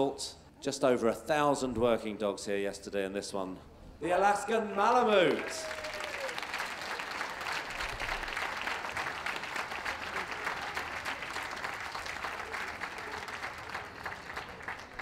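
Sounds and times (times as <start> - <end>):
audience applauding: 4.6 - 15.0.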